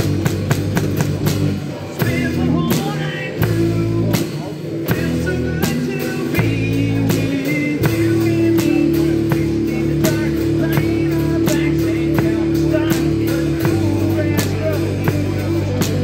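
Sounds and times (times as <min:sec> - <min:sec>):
drum kit beat: 0:00.0 - 0:16.0
sustained guitar chords: 0:00.0 - 0:16.0
person singing: 0:01.8 - 0:16.0.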